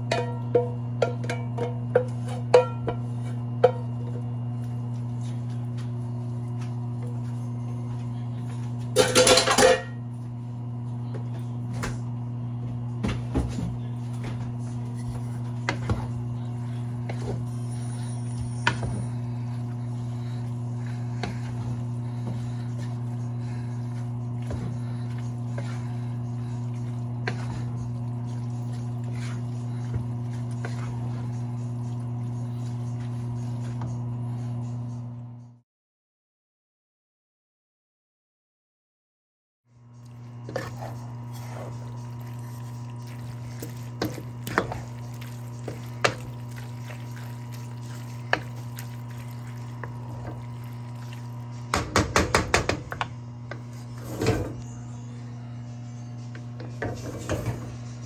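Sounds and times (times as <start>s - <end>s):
kitchen appliance hum: 0.0s - 35.6s, 39.7s - 58.0s
clinks of pots and dishes: 9.0s - 10.0s.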